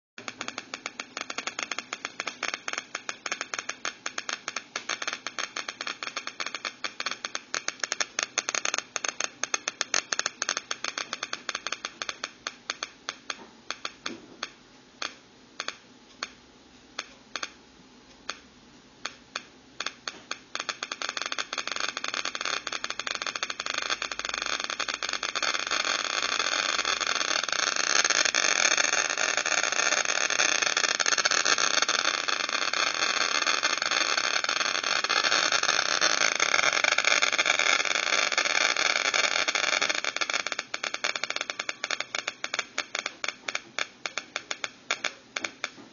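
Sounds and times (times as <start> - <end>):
geiger counter clicks from loudspeaker: 0.2 - 16.4, 17.0 - 18.4.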